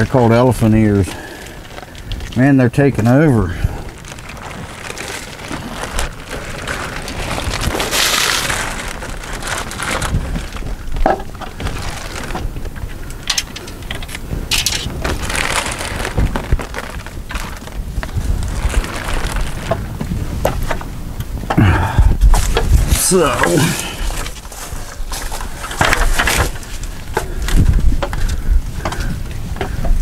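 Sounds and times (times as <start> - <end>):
plastic tarp crinkling: 0.0 - 20.9, 22.2 - 28.3.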